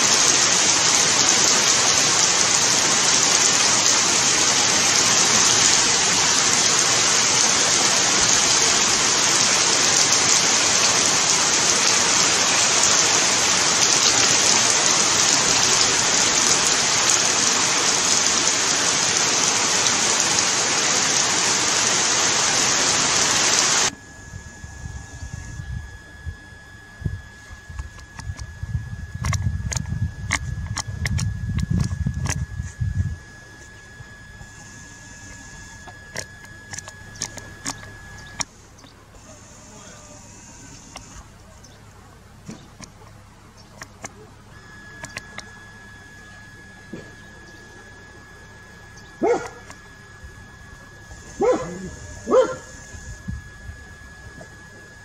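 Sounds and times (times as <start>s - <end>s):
heavy rain pouring: 0.0s - 38.9s.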